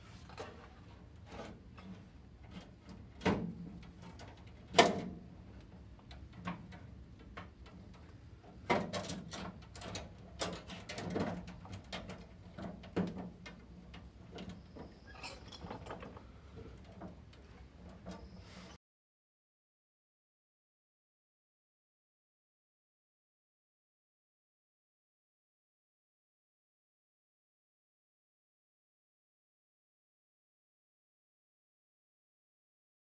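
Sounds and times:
metal line clicking and scraping: 5.5 - 18.4.

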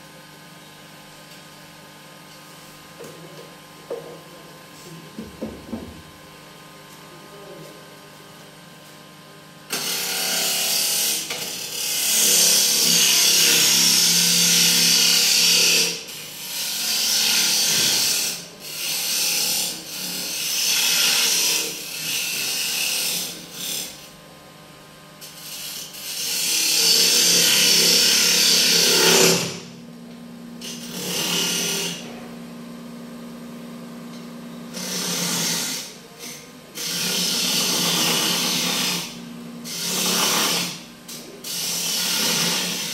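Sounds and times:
turning tool cutting wood: 9.7 - 24.0, 25.3 - 29.7, 30.6 - 32.1, 34.7 - 42.9.

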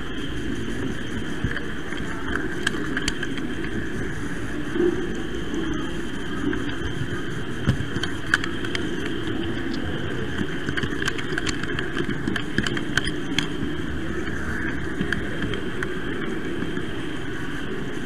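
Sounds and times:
wheels clicking on rails: 7.9 - 16.9.

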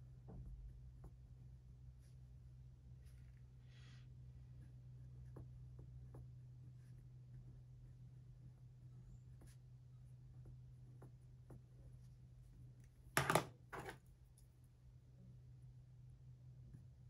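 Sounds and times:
pen knocking on wooden desk: 13.2 - 14.0.

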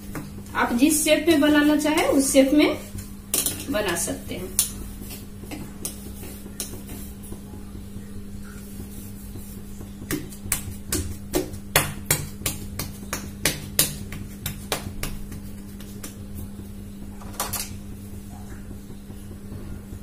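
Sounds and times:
hands pressing dough: 0.0 - 20.0
steady low hum: 0.0 - 20.0
sharp taps and knocks: 3.3 - 7.4, 9.8 - 16.3.

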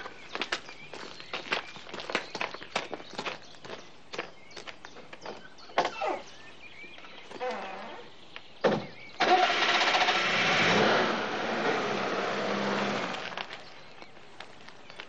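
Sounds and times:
car engine starting and running: 9.2 - 13.6.

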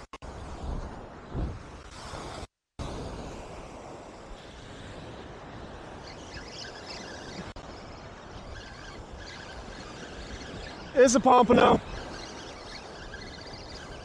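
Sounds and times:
wind rumbling on microphone: 0.0 - 14.0
surf breaking on beach: 9.5 - 14.0.

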